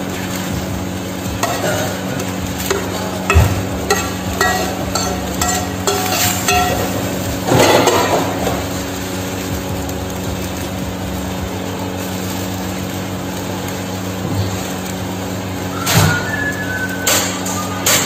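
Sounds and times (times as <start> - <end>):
steady hum: 0.0 - 15.9
metal spatula scraping frying pan: 2.6 - 8.6.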